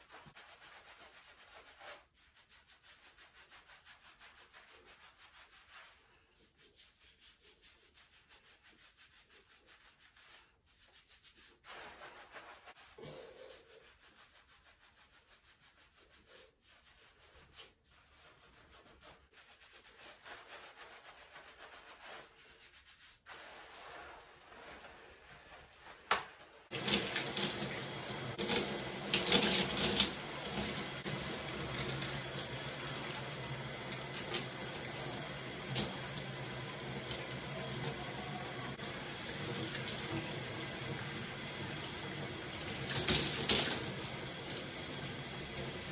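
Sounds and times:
fingertips rubbing lathered hair: 0.0s - 45.9s
shower spray running: 26.7s - 45.9s.

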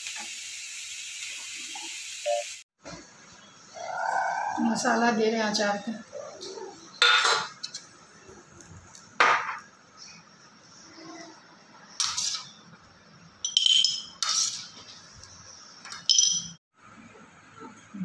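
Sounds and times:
steel spoon clinking on steel plate: 13.4s - 14.6s.

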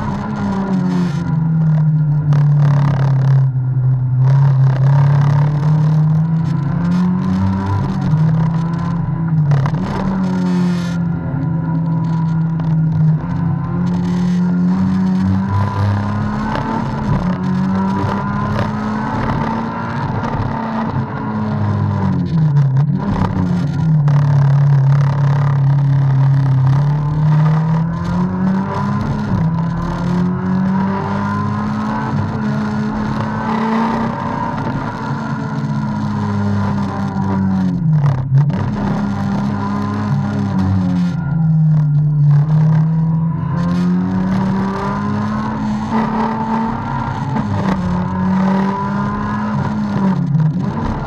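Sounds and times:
car engine revving from inside cabin: 0.0s - 51.0s.

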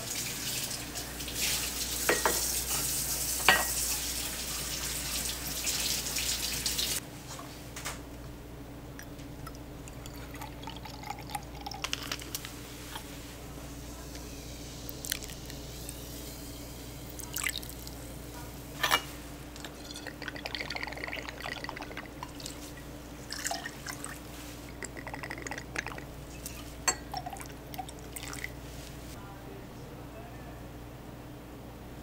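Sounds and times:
liquid pouring into glass: 9.4s - 12.2s, 14.9s - 15.6s, 17.2s - 18.0s, 19.8s - 22.7s, 23.3s - 28.6s
glass and bar tools clinking: 19.6s - 20.4s.

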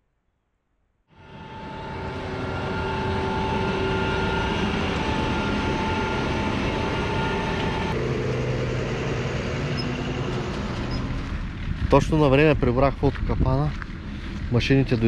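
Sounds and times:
combine harvester engine drone: 1.1s - 15.0s
low machine hum: 1.1s - 15.0s.

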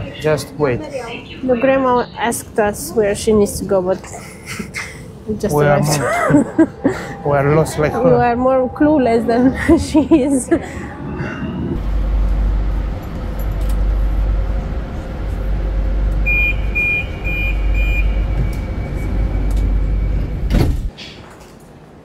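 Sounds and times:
train low rumble: 0.0s - 20.9s
short high beeps: 16.3s - 20.3s.

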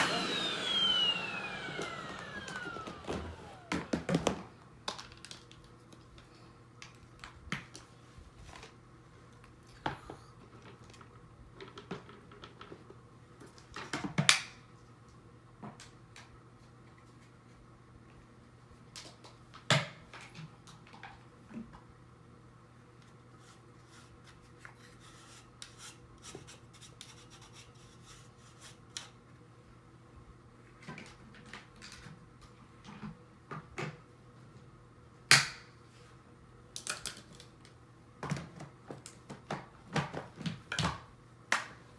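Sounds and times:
vacuum cleaner motor spinning down: 0.0s - 4.4s.

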